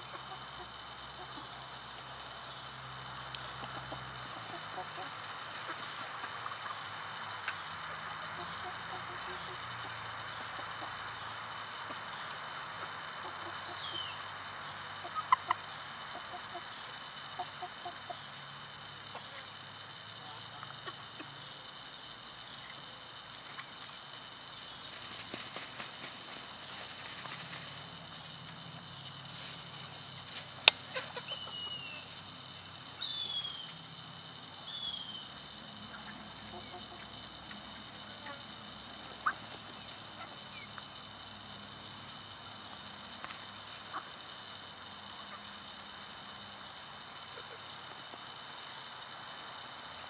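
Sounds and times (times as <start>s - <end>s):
chickens clucking: 0.0s - 50.0s
faint high drone: 0.0s - 50.0s
steady background hiss: 0.0s - 50.0s
falling whistled bird calls: 33.0s - 33.8s, 34.7s - 35.3s.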